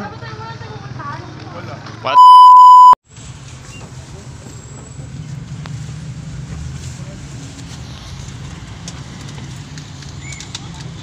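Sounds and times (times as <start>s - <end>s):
engine and road rumble: 2.8s - 11.0s.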